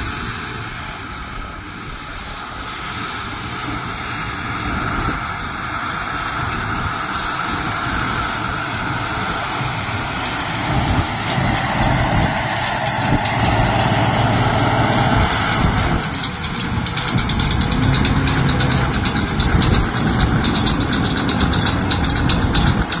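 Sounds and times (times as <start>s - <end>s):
tractor diesel engine running: 0.0s - 23.0s
baler fast clicking: 9.8s - 23.0s.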